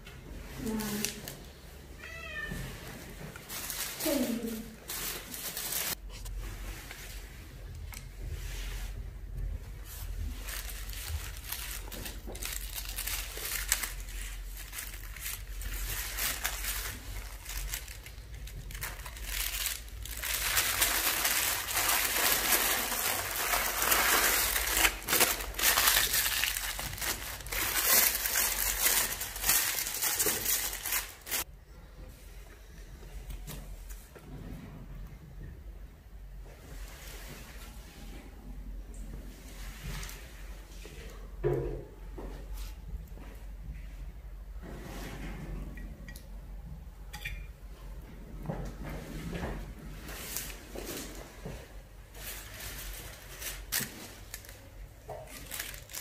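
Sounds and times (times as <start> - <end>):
crinkling handling noise: 0.0 - 31.5, 48.5 - 56.0.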